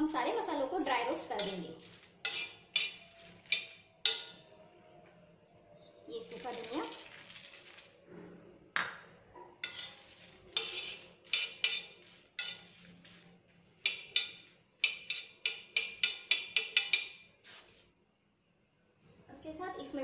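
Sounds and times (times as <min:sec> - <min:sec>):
steel spoon scraping griddle: 0:01.2 - 0:04.5, 0:05.8 - 0:08.4, 0:09.5 - 0:17.8
seeds poured onto griddle: 0:06.3 - 0:08.0, 0:09.8 - 0:13.6.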